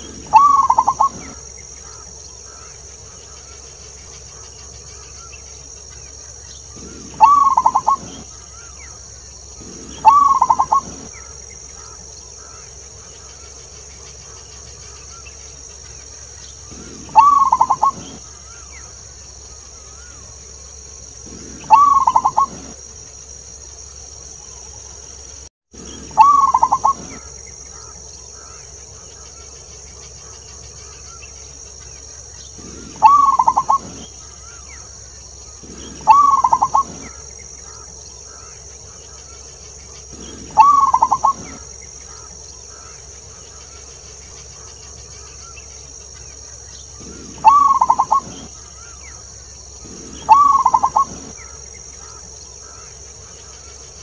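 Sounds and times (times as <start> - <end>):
dove cooing: 0.0 - 2.7, 6.7 - 12.7, 16.6 - 18.9, 21.2 - 22.8, 25.8 - 28.6, 32.6 - 38.6, 40.0 - 43.0, 47.0 - 49.0, 49.8 - 52.9
steady high-pitched hiss: 0.0 - 54.0.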